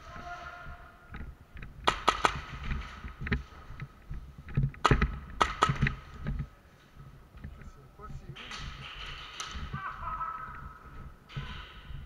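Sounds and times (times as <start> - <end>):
airsoft guns firing: 1.8 - 3.2, 4.8 - 6.1, 8.4 - 10.6.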